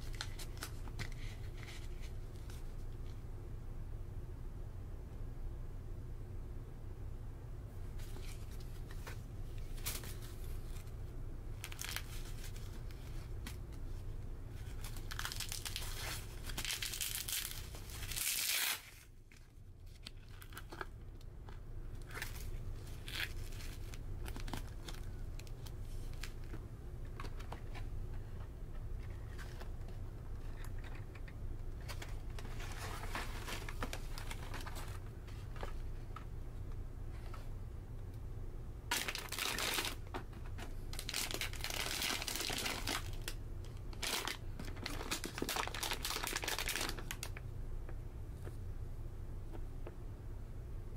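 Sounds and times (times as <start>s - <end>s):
packaging crinkling and tearing: 11.6s - 13.6s, 14.6s - 21.2s, 22.0s - 26.6s, 31.8s - 35.0s, 38.9s - 40.2s, 40.9s - 47.4s.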